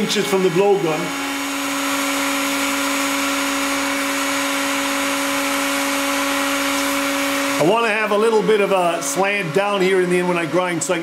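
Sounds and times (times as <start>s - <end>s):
heat gun running: 0.0s - 11.0s.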